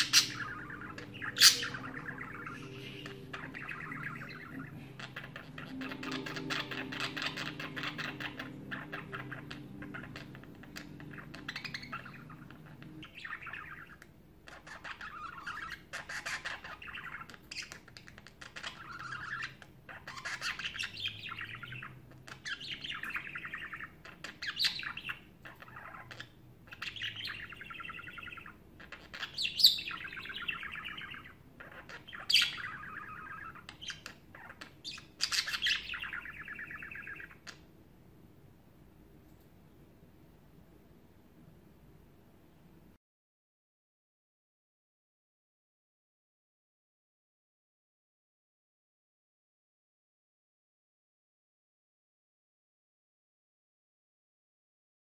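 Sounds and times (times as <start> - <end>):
high budgerigar squeaks: 0.0 - 37.6.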